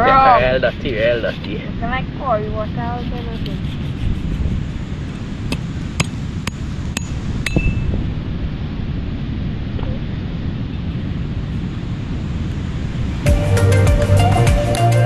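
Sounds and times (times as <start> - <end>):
wind and surf rumble: 0.0 - 15.0.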